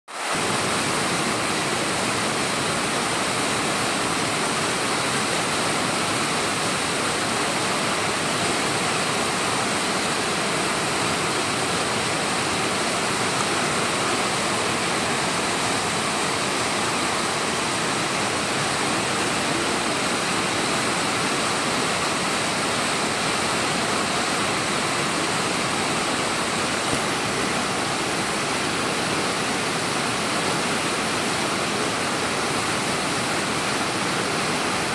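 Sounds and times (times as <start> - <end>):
river rushing over rapids: 0.1 - 34.9.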